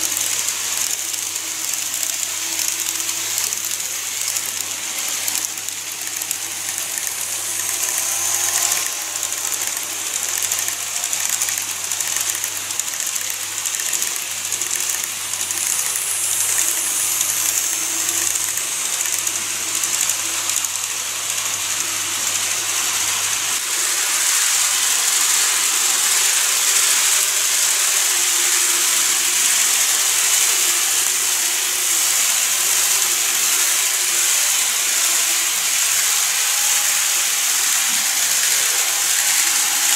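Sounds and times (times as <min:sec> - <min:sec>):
model train motors whirring: 0:00.0 - 0:39.9.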